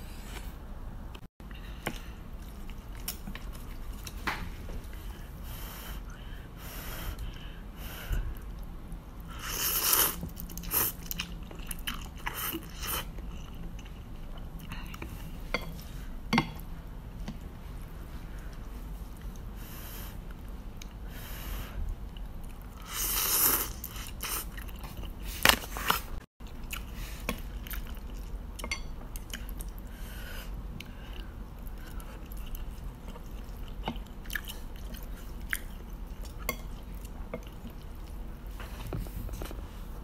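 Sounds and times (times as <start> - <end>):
person chewing and slurping: 9.3 - 15.3.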